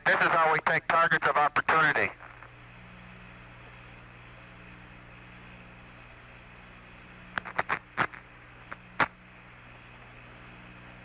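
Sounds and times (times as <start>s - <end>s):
sharp radio clicks and crackles: 0.0s - 2.6s, 7.3s - 9.2s
radio hiss and hum: 0.0s - 11.0s.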